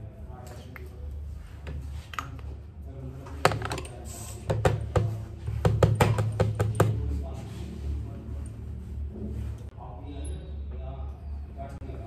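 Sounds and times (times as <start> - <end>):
makeup tools clicking and tapping: 5.7 - 7.0.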